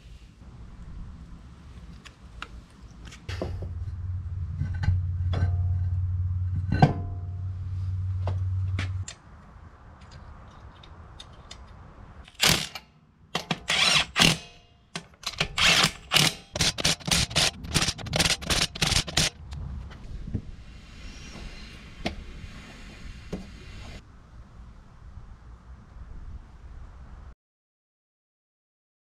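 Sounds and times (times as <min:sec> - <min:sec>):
impact wrench bursts: 0:12.3 - 0:12.8, 0:13.4 - 0:14.6, 0:15.2 - 0:19.3.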